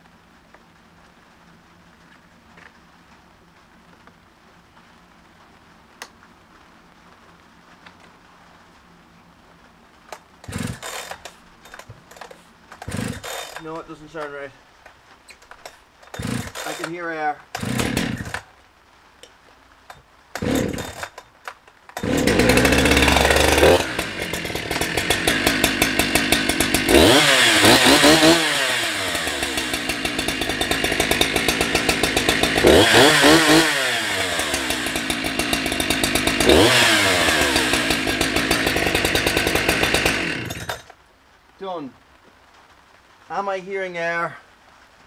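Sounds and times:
chainsaw starting and idling: 10.1s - 14.3s, 15.6s - 18.5s, 19.9s - 41.0s
chainsaw throttle blips: 10.4s - 13.8s, 16.1s - 18.4s, 20.4s - 21.2s, 22.0s - 40.9s.

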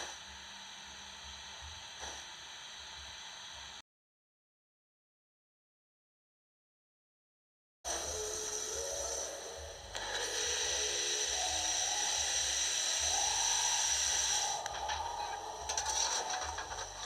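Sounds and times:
model locomotive steam hiss: 7.9s - 17.0s.

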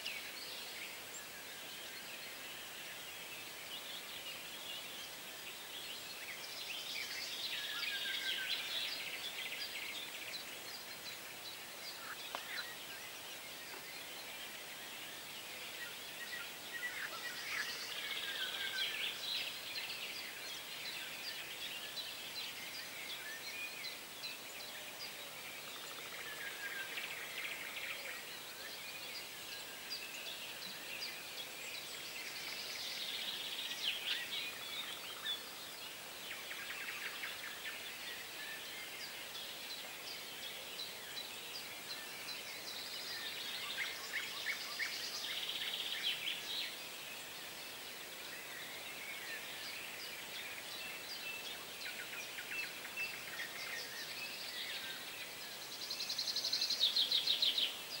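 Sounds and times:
faint background hiss: 0.0s - 58.0s
songbirds singing: 0.0s - 58.0s.

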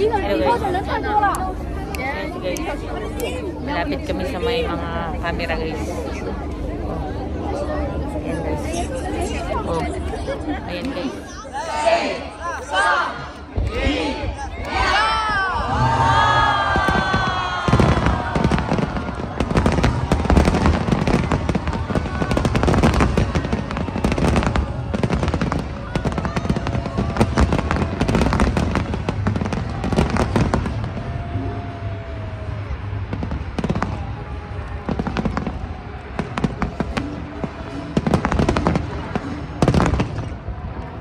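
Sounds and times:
fireworks crackling: 16.6s - 31.4s, 32.1s - 40.8s.

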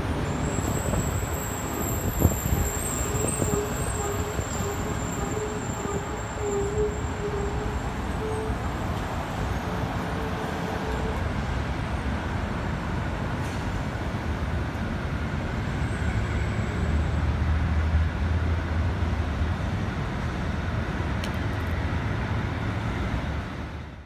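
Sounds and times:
passing vehicles rumbling: 0.0s - 24.0s.

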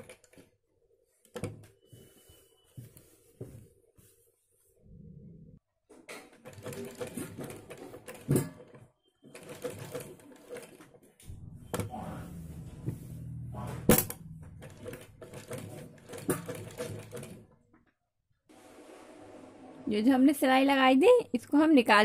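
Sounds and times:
sewing machine clatter: 6.2s - 11.2s, 14.6s - 17.6s.

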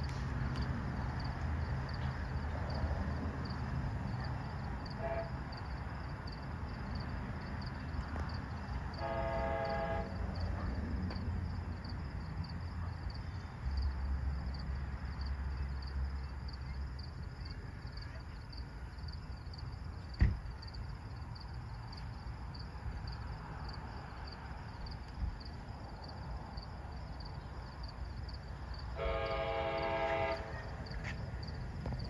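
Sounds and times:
train rumble: 0.0s - 16.8s, 22.8s - 32.0s
distant train horn: 4.9s - 5.6s, 9.0s - 10.7s, 28.9s - 30.8s.

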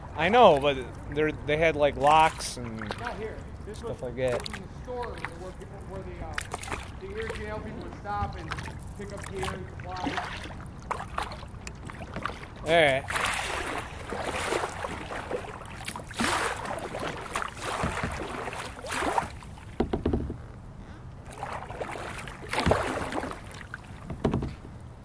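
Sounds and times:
kayak paddle splashing in water: 0.2s - 20.0s, 21.2s - 24.6s.

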